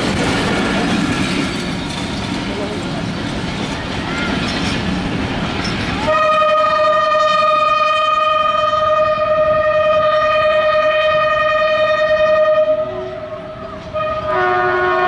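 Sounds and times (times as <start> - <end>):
passenger train running: 0.0 - 15.0
locomotive horn blast: 6.0 - 15.0.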